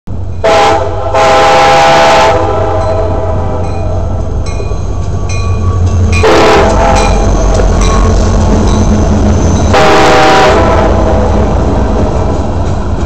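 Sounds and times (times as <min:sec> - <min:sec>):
freight train rumbling: 0:00.1 - 0:13.0
train air horn blasts: 0:00.4 - 0:03.6, 0:06.2 - 0:07.1, 0:09.7 - 0:11.3.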